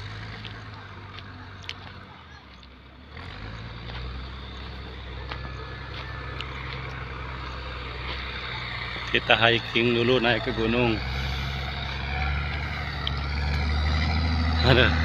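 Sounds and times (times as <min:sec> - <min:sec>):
steady low rumble: 0:03.9 - 0:13.9.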